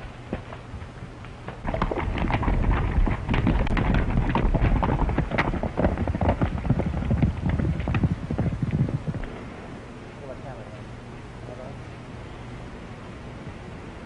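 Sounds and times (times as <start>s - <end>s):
horses galloping hoofbeats: 0.0s - 9.7s
low rumble: 0.0s - 10.3s.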